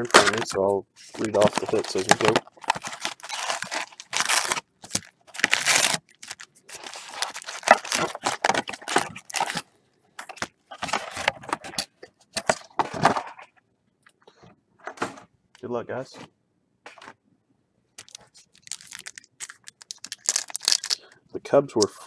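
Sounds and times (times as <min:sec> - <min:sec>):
foil wrappers crinkling: 0:00.0 - 0:11.8, 0:18.0 - 0:21.1.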